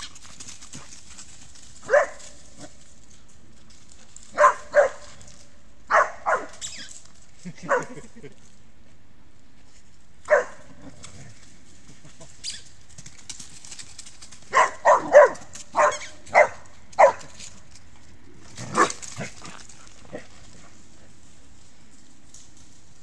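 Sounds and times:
dog barking: 1.8s - 2.4s, 4.3s - 5.2s, 5.9s - 6.7s, 7.7s - 8.0s, 10.3s - 10.7s, 14.5s - 17.4s, 18.7s - 19.0s.

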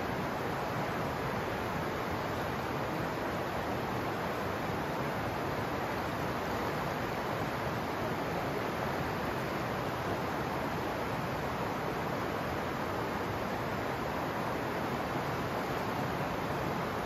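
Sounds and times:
river water rushing over rocks: 0.0s - 17.0s.

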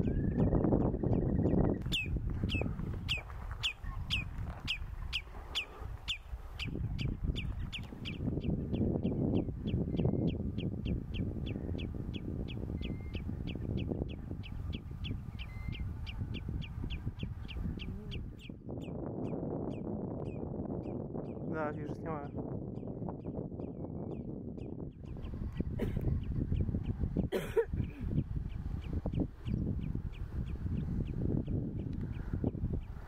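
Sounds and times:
bird alarm call: 1.2s - 18.6s.

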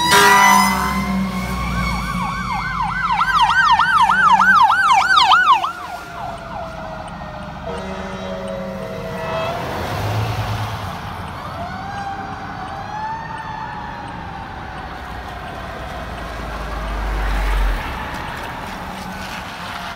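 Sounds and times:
siren horn chord: 0.0s - 10.6s
siren wailing: 0.0s - 18.4s
traffic noise: 0.0s - 19.9s.

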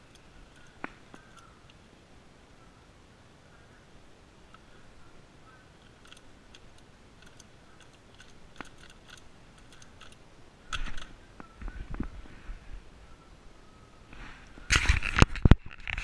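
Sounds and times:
puzzle cube pieces clicking: 5.9s - 10.2s.

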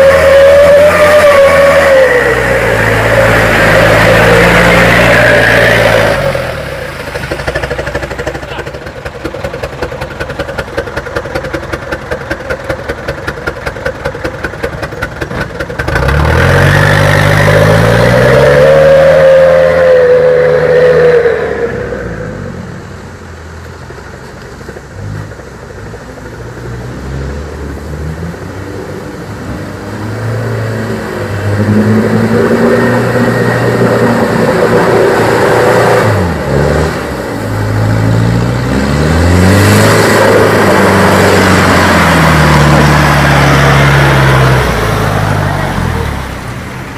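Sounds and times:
truck diesel engine labouring: 0.0s - 46.9s.

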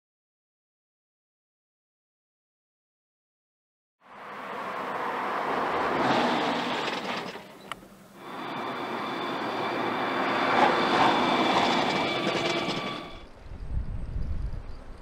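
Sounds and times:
car tyre and road noise: 4.0s - 13.3s
steady whine: 6.4s - 13.3s.

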